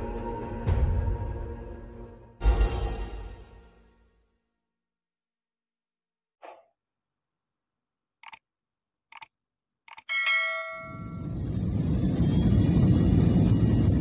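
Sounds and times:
bright bell chime: 10.1s - 11.3s
airliner cabin noise: 10.9s - 14.0s.

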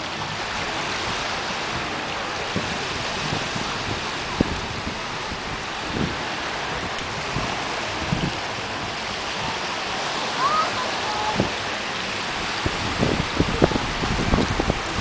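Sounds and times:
small waves washing on sand: 0.0s - 15.0s
wind on microphone: 0.0s - 15.0s.

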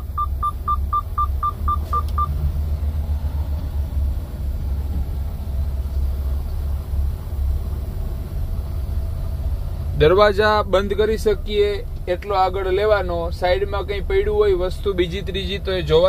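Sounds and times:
seat-belt warning chime beeping: 0.0s - 2.4s
truck diesel engine rumbling: 0.0s - 16.0s.

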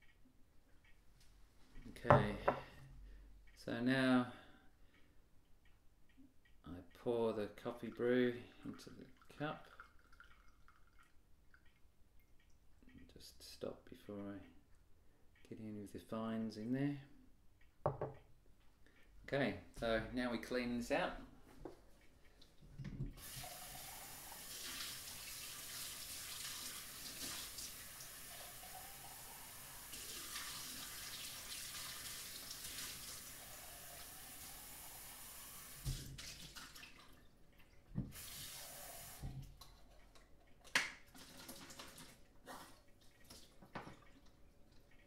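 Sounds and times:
tap water running into glass: 9.2s - 11.7s.

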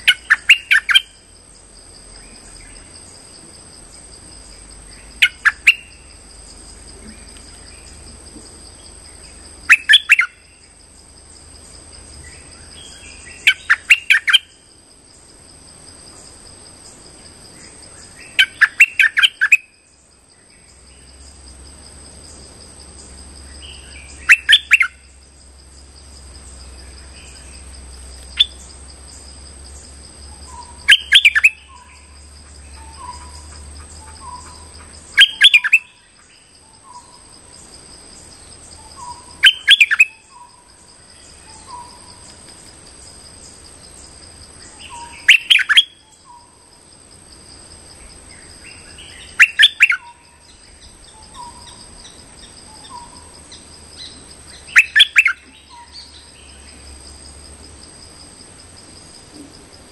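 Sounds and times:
bird chattering calls: 0.0s - 1.1s, 5.2s - 5.9s, 9.7s - 10.4s, 13.3s - 14.5s, 18.3s - 19.6s, 23.7s - 25.0s, 30.5s - 35.9s, 44.7s - 46.5s, 48.7s - 50.2s, 52.8s - 56.2s.

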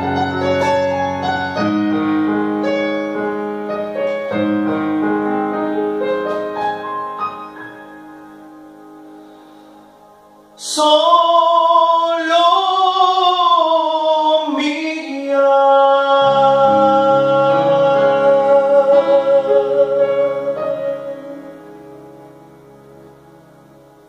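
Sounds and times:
keyboard chords: 0.0s - 24.0s
man singing with vibrato: 10.6s - 21.7s.

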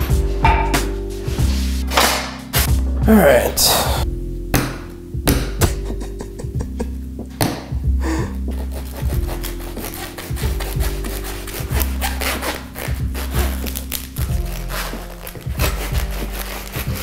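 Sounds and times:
background music with bass: 0.0s - 17.0s
bread knife sawing crust: 8.5s - 17.0s.

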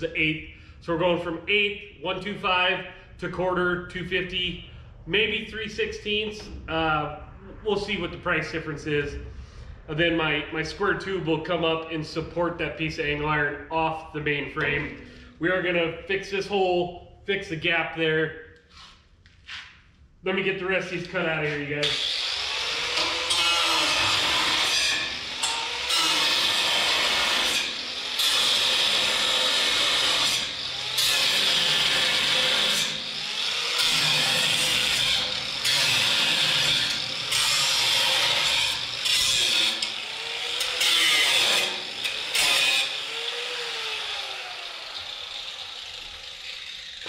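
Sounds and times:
power cutting tool cutting bolts: 21.8s - 47.0s.

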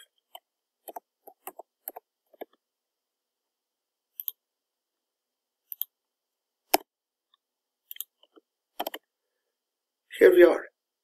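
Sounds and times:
mouse clicks: 0.2s - 2.6s, 4.1s - 4.4s, 5.6s - 6.0s, 6.7s - 9.1s.

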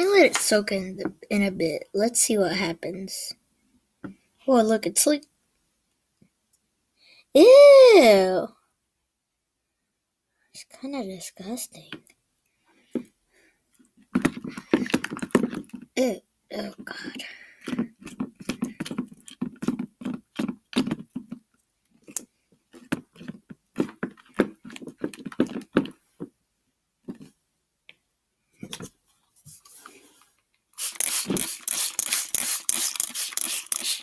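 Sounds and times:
spray bottle hissing: 30.8s - 34.0s.

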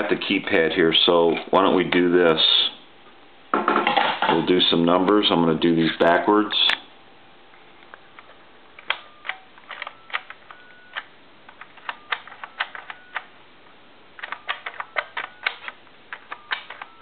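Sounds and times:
touch-tone beeps: 9.0s - 11.0s.

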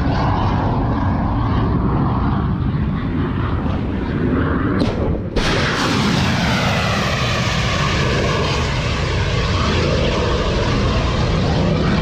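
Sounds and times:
rocket motor roaring: 0.0s - 12.0s.

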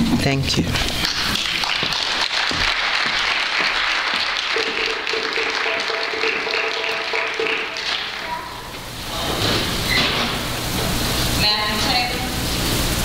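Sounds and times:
audience applauding: 1.0s - 8.5s.

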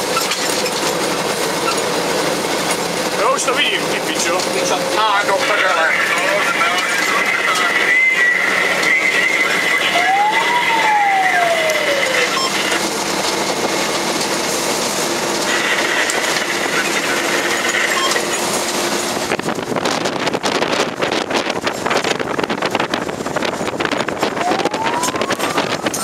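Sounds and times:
truck engine and road noise: 0.0s - 26.0s
rising and falling siren tone: 9.5s - 12.8s, 24.2s - 26.0s
wind buffeting microphone: 18.6s - 26.0s.

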